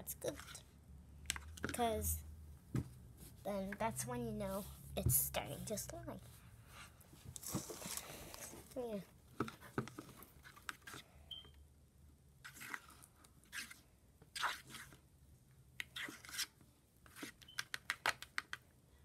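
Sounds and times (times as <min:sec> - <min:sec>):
pen stirring wet slime: 0:09.4 - 0:11.5, 0:12.4 - 0:15.0, 0:15.8 - 0:18.7.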